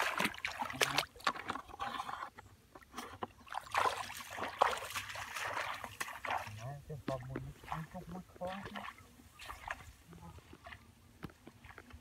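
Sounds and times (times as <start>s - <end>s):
feet wading through muddy water: 0.0s - 12.0s.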